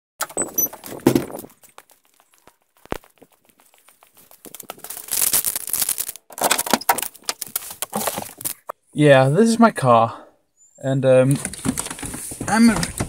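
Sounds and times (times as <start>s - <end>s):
crackling rustling noise: 0.6s - 8.7s, 11.3s - 13.0s.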